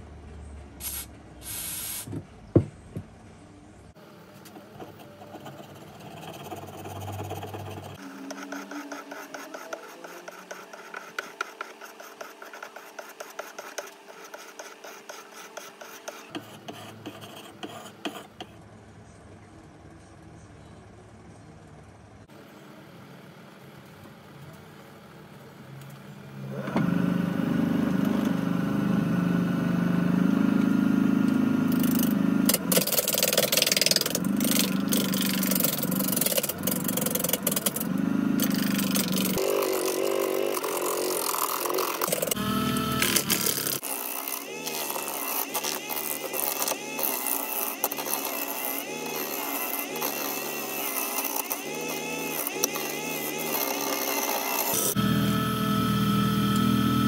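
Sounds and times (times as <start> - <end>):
gouge cutting spinning wood: 5.2 - 18.2, 29.2 - 55.5
gouge scraping on sharpening stone: 5.3 - 18.4.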